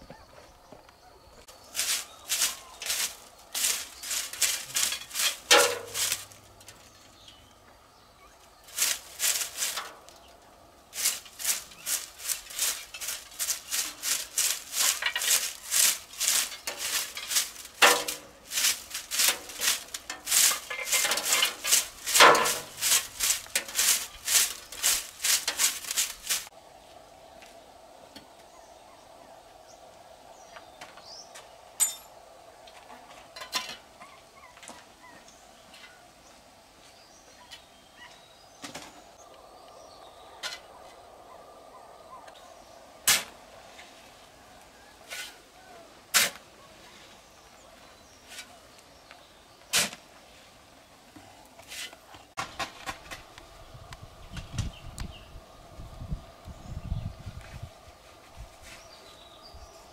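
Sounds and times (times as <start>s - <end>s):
broom sweeping roof tiles: 1.7s - 6.4s, 8.6s - 10.1s, 11.0s - 26.5s, 45.0s - 45.5s, 46.1s - 47.2s, 48.1s - 48.6s, 49.7s - 50.6s, 51.6s - 53.1s, 58.0s - 59.1s.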